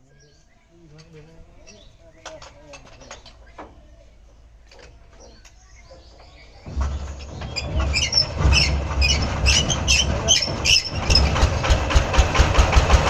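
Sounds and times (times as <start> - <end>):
diesel engine hand-cranked: 5.1 - 13.0
diesel engine chugging: 6.0 - 13.0
sharp engine ticking: 6.7 - 13.0.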